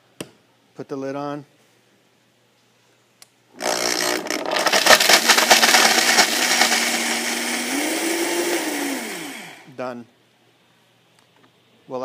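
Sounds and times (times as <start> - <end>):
blender motor running: 3.6 - 9.7
cheese pieces rattling in jar: 4.2 - 7.1.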